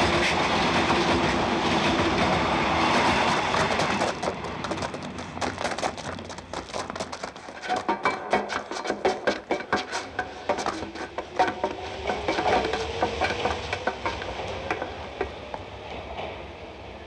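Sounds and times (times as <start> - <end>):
people running on gravel: 3.3 - 9.7.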